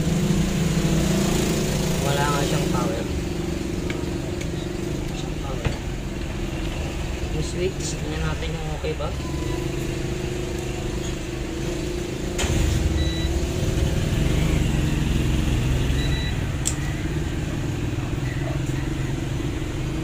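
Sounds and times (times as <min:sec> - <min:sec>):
faint high beeps: 0:14.2 - 0:17.4.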